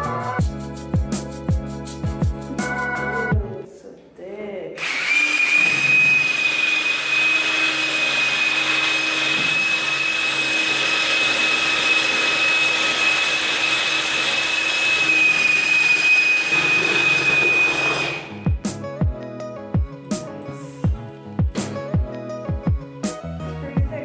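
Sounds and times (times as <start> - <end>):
drill motor whine: 4.8 - 18.5.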